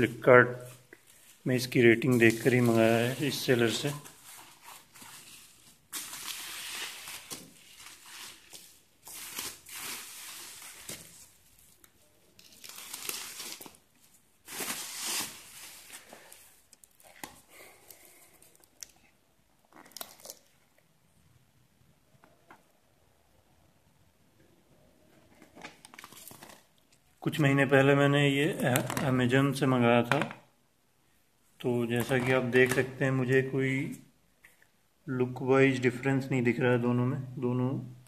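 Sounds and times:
bubble wrap crinkling: 0:00.6 - 0:20.6, 0:25.6 - 0:27.0.

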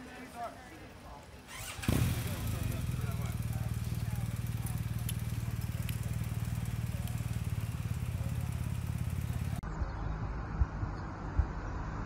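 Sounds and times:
diesel engine idling: 0:01.5 - 0:09.6
low rumble: 0:08.9 - 0:12.0.

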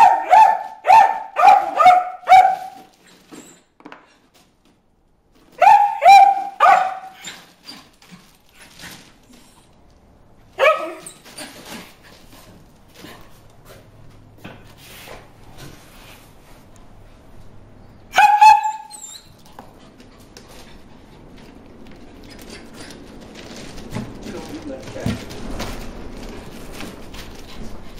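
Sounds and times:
dog barking: 0:00.0 - 0:02.9, 0:05.6 - 0:07.3, 0:10.6 - 0:11.1, 0:18.1 - 0:18.9
faint scuffling: 0:19.2 - 0:27.9.

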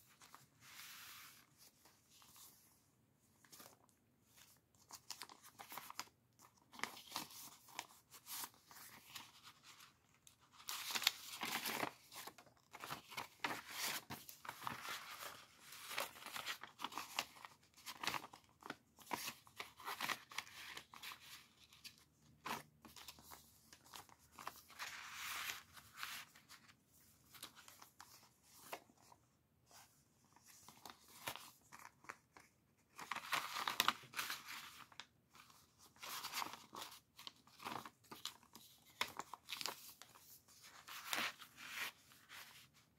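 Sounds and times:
paper and card rustling: 0:03.3 - 0:42.9.

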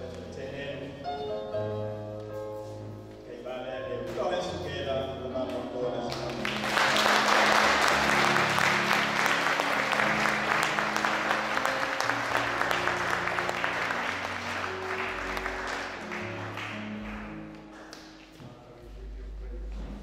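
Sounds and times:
instrumental music with low notes: 0:00.0 - 0:20.0
congregation clapping: 0:06.1 - 0:18.4.

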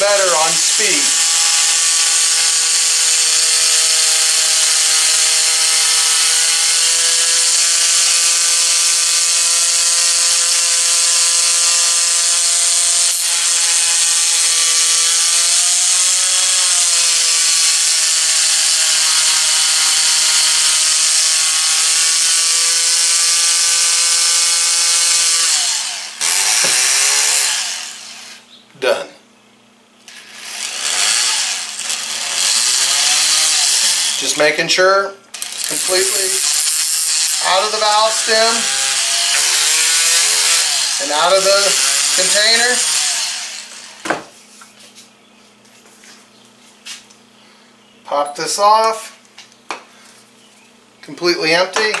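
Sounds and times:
oscillating multi-tool buzzing: 0:00.1 - 0:28.5, 0:30.1 - 0:34.4, 0:35.3 - 0:44.1.

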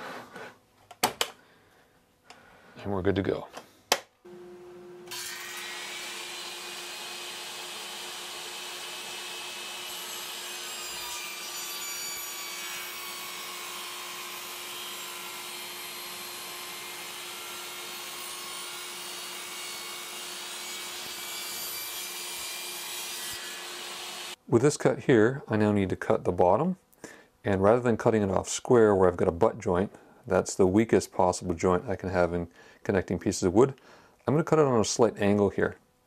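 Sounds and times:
table saw cutting wood: 0:04.3 - 0:24.4.

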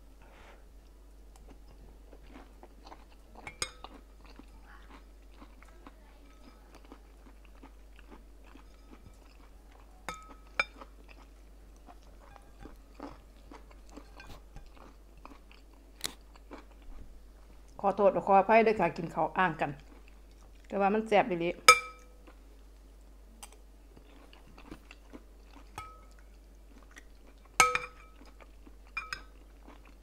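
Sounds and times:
person chewing and slurping: 0:01.4 - 0:17.5, 0:24.0 - 0:30.0
metal spoon clicking on glass bowl: 0:27.6 - 0:28.1.

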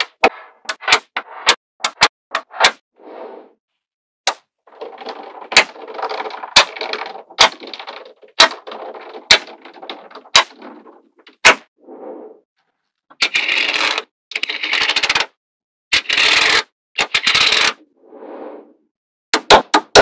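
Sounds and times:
balls rattling: 0:04.7 - 0:11.5
clatter of many balls: 0:04.7 - 0:11.5.

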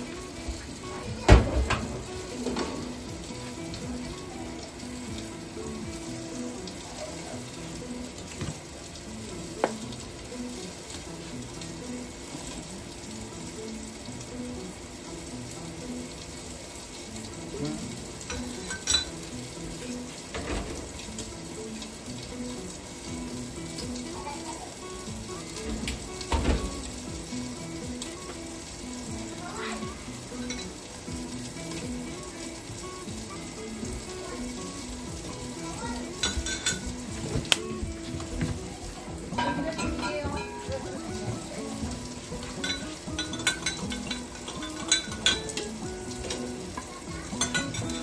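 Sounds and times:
fish sizzling in a frying pan: 0:00.0 - 0:48.0
utensil clinking against pan: 0:18.3 - 0:19.2, 0:36.2 - 0:37.0, 0:39.4 - 0:40.9, 0:42.4 - 0:48.0.

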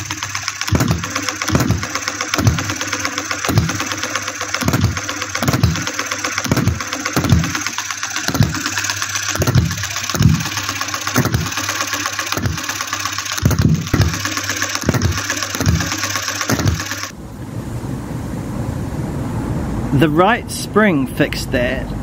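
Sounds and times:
small diesel engine running: 0:00.0 - 0:17.1.

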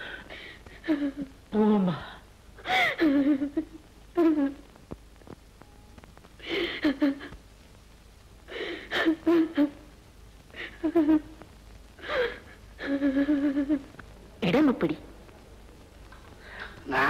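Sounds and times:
woman sobbing: 0:00.0 - 0:04.6, 0:06.4 - 0:07.4, 0:08.5 - 0:09.9, 0:10.6 - 0:11.4, 0:12.0 - 0:13.9.

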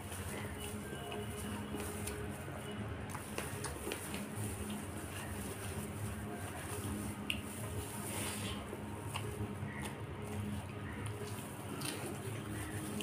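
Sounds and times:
fingers mixing rice: 0:00.0 - 0:13.0
person chewing: 0:08.0 - 0:13.0.

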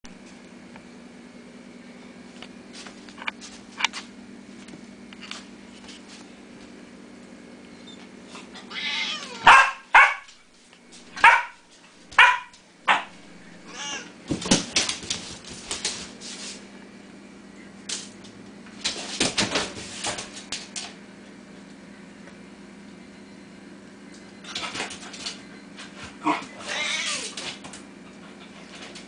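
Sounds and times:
puppy barking: 0:09.3 - 0:10.3, 0:11.2 - 0:11.6, 0:12.2 - 0:13.2.

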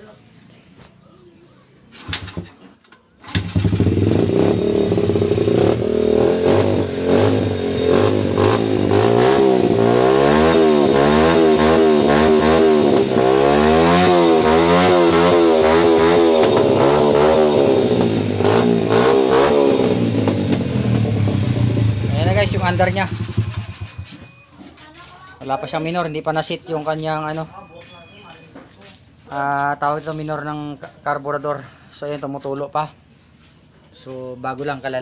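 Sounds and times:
motorcycle engine revving: 0:03.2 - 0:24.4.

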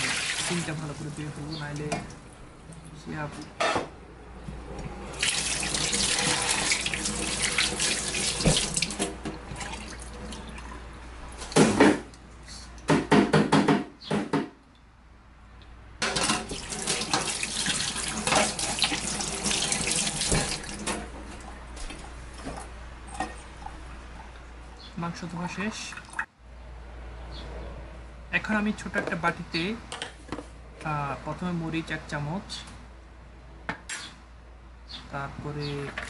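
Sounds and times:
water splashing: 0:00.0 - 0:01.8, 0:05.1 - 0:11.6, 0:16.0 - 0:22.2.

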